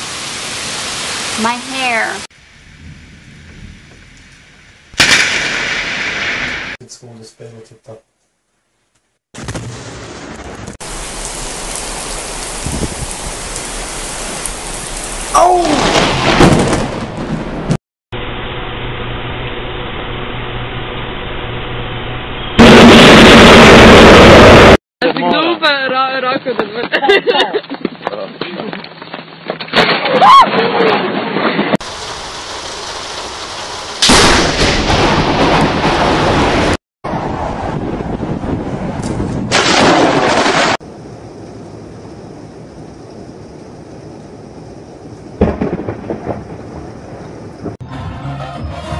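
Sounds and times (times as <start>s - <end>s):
steady rain: 0.0s - 5.0s, 9.7s - 17.7s, 31.8s - 36.8s, 37.8s - 47.7s
loud thunderclap rumbling: 9.4s - 17.8s, 22.6s - 24.8s, 30.9s - 47.8s
person crying out: 15.3s - 16.0s.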